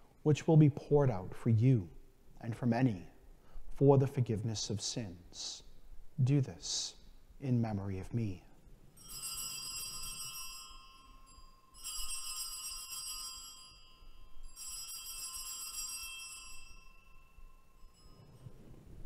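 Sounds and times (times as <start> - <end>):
altar bells jingling: 9.0 - 18.9.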